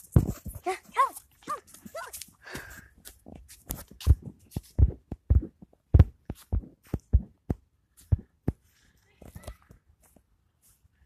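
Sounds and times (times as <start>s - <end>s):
footfall thumps on microphone: 0.1s - 0.7s, 4.0s - 8.6s.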